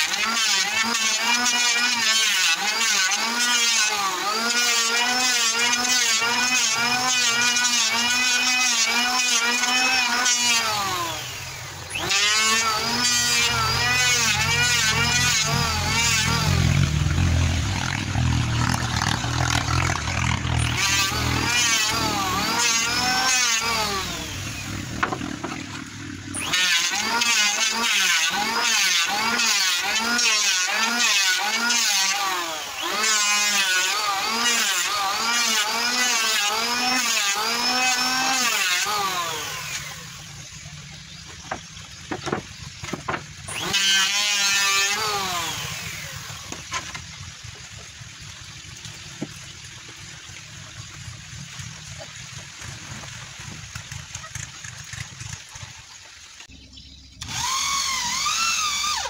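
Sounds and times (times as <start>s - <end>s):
electric planer shaving wood: 0.0s - 47.8s, 57.2s - 59.0s
knocks: 41.4s - 43.3s.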